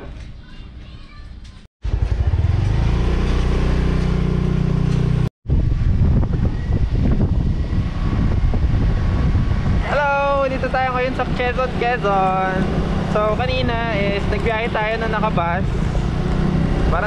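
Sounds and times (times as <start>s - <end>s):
road noise: 1.4s - 17.0s
small motorcycle engine running: 1.8s - 5.3s.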